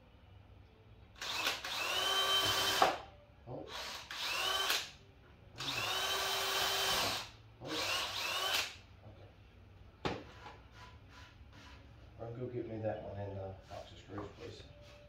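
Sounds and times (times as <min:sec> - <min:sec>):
cordless drill motor whine: 0:01.2 - 0:02.8, 0:03.8 - 0:04.8, 0:05.6 - 0:07.1, 0:07.8 - 0:08.6.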